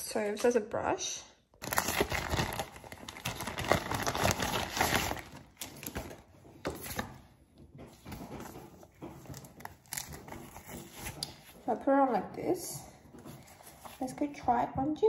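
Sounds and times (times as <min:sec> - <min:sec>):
plastic bag crinkling: 0:01.6 - 0:07.2.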